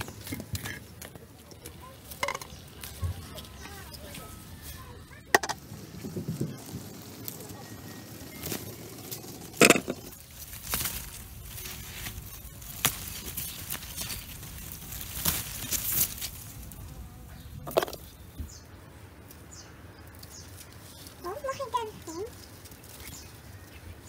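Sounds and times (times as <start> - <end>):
leaves and branches rustling: 0.0 - 24.0
branches snapping: 8.3 - 16.8.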